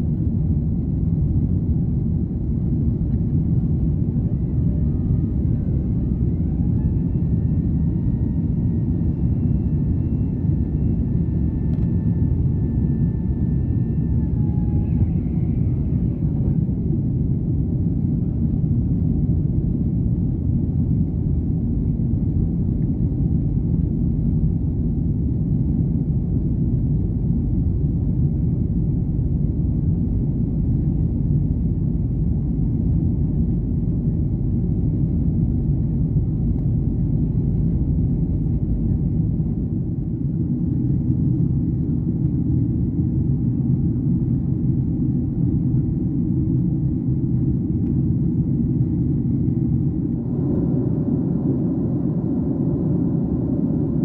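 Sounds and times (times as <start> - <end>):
faint engine whine: 0.0 - 54.0
jet engines roaring: 47.1 - 54.0.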